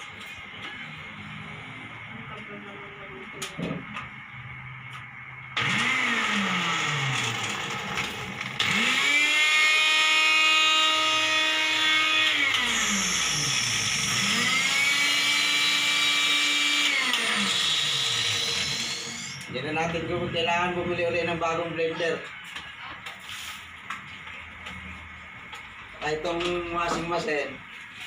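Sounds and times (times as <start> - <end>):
blender motor whining: 5.6 - 19.5.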